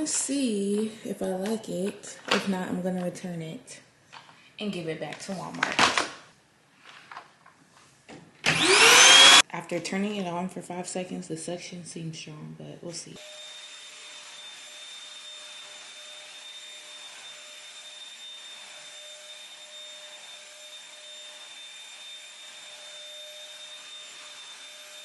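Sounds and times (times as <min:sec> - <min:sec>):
vacuum cleaner running: 0:08.4 - 0:09.4, 0:13.2 - 0:25.0.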